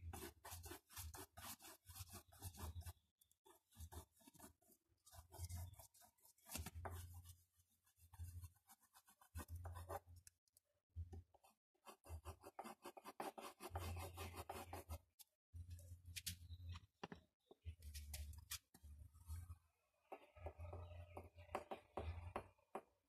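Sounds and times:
fingers rubbing pastel on paper: 0:00.0 - 0:10.1, 0:11.4 - 0:15.0.

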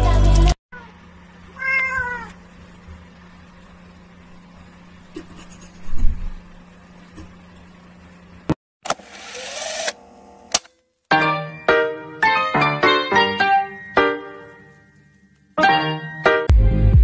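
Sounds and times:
steady low hum: 0:02.2 - 0:08.6
piano music: 0:11.1 - 0:15.0, 0:15.6 - 0:17.0.

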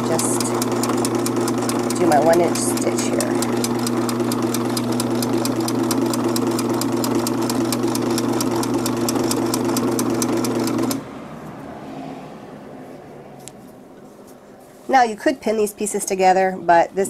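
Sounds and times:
sewing machine stitching: 0:00.0 - 0:11.0.

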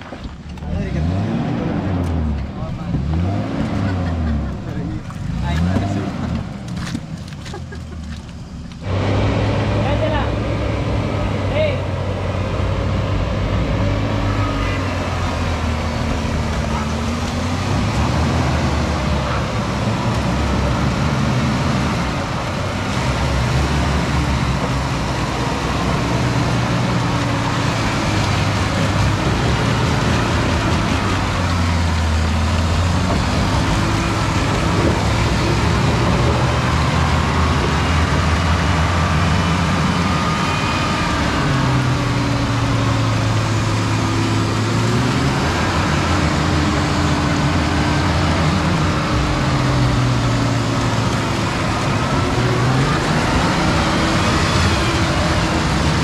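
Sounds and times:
engine running under load: 0:00.0 - 0:56.0.

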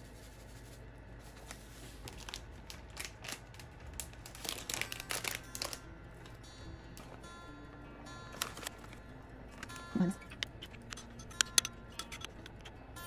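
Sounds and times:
plastic packet crinkling: 0:02.0 - 0:05.8, 0:08.3 - 0:09.8.

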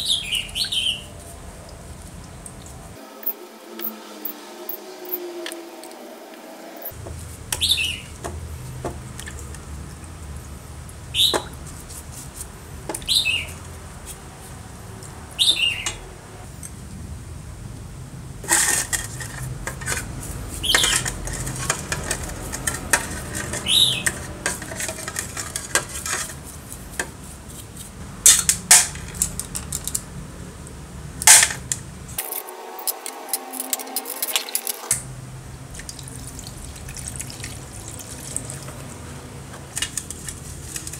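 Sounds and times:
paintbrush scrubbing metal parts: 0:00.1 - 0:06.0, 0:11.2 - 0:16.0, 0:18.4 - 0:30.0, 0:32.2 - 0:35.0, 0:35.9 - 0:40.9.

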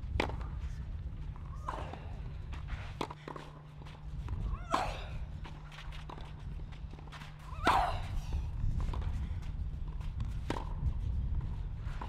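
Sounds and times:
low hum and rumble: 0:00.0 - 0:12.0
tennis ball struck by racket: 0:00.1 - 0:00.5.

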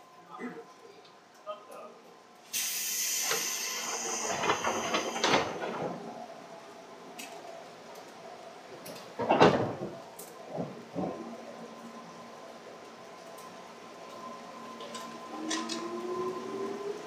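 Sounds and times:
air hiss: 0:02.5 - 0:05.4
train door clunk: 0:02.6 - 0:06.1, 0:09.0 - 0:11.3.

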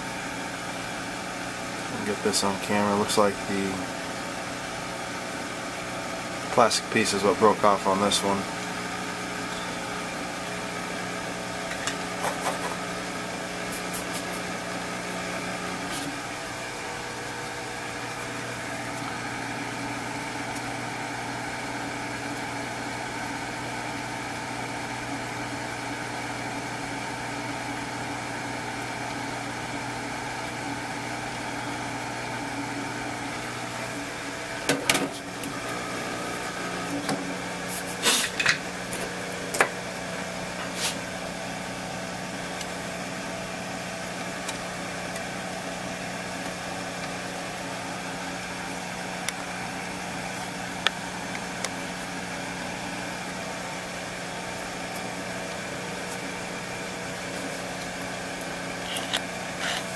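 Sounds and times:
blower humming: 0:00.0 - 0:59.9.

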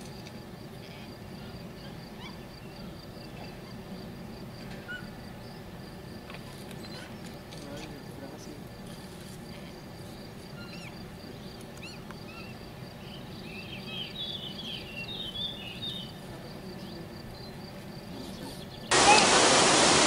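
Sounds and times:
small birds chirping: 0:06.4 - 0:19.4
loud steady rushing noise: 0:18.9 - 0:20.0.

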